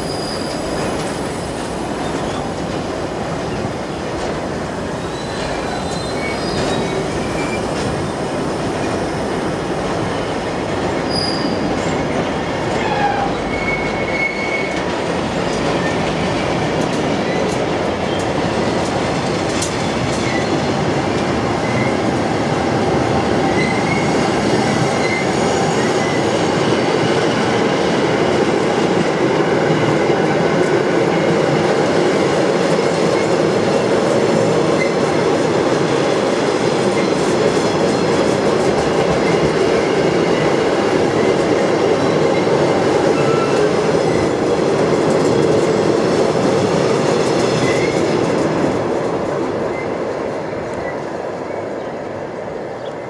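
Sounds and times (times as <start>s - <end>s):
faint high squeal: 0.0s - 2.6s, 4.5s - 7.7s, 11.1s - 11.6s
train wheels clattering on rails: 0.0s - 51.8s.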